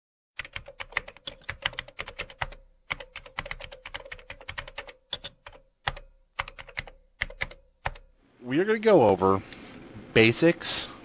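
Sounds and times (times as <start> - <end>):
keyboard typing clicks: 0.4 - 8.1.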